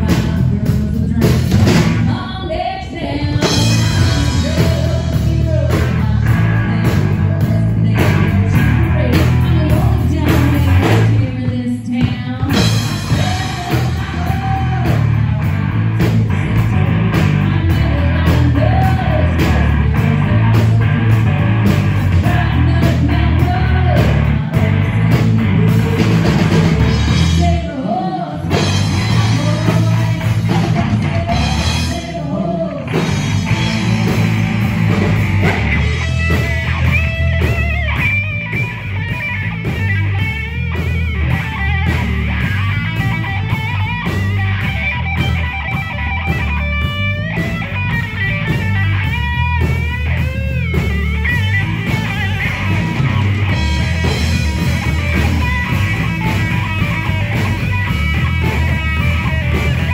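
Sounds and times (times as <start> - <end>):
country rock band playing: 0.0 - 59.9
drum kit: 0.0 - 59.9
electric bass: 0.0 - 59.9
person singing: 0.0 - 59.9
electric guitar solo with bent notes: 32.4 - 59.9.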